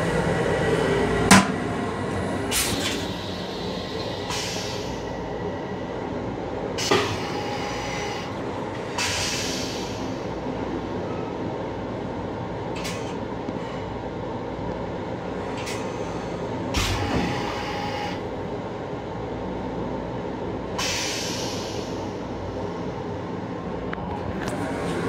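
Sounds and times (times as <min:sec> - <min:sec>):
hiss: 0:02.6 - 0:05.0, 0:09.0 - 0:10.2, 0:20.8 - 0:22.0.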